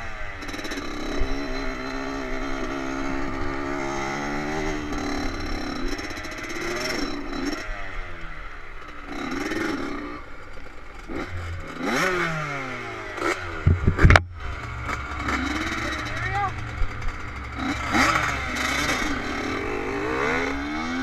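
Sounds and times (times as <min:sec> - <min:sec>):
dirt bike engines revving: 0:00.0 - 0:21.0
loud thumps: 0:13.6 - 0:19.1.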